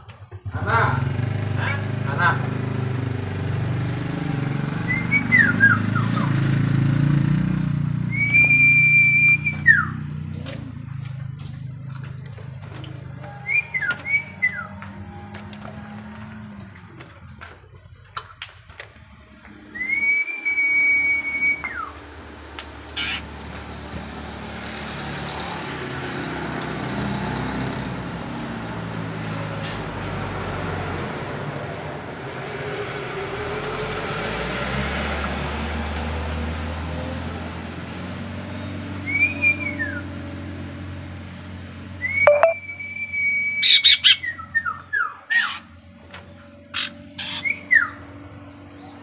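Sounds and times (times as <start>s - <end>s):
bird whistling: 4.8s - 6.7s, 8.0s - 10.5s, 13.2s - 15.1s, 18.6s - 22.1s, 22.9s - 23.3s, 39.0s - 40.1s, 42.0s - 45.7s, 46.7s - 48.0s.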